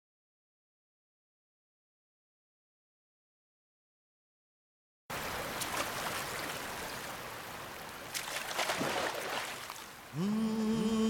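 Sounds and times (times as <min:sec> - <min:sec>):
stream rushing over rocks: 0:05.1 - 0:11.0
feet wading through water: 0:05.2 - 0:10.0.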